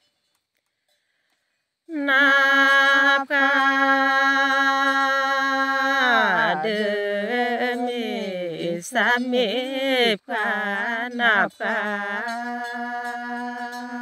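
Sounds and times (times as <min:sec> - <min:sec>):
person chanting unaccompanied: 0:01.9 - 0:14.0.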